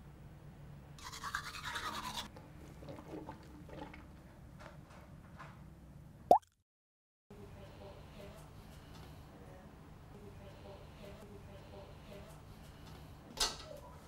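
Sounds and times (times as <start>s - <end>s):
toothbrush bristles scrubbing: 1.0s - 2.3s.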